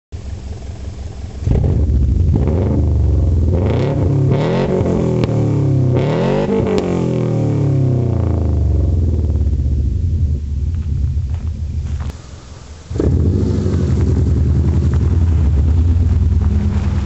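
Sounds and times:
uneven exhaust rumble: 0.1 - 17.0
car engine idling and revving: 0.2 - 17.0.

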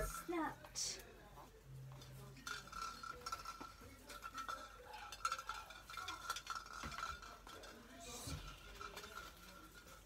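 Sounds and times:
clicks and clinks of decoration: 1.9 - 10.0.

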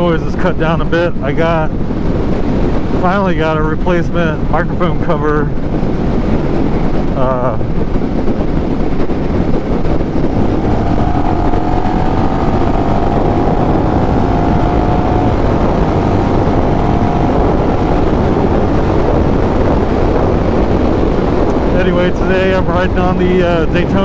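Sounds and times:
wind rushing over microphone: 0.0 - 24.0
motorcycle engine running: 5.5 - 24.0
faint rising whine: 10.1 - 20.0.

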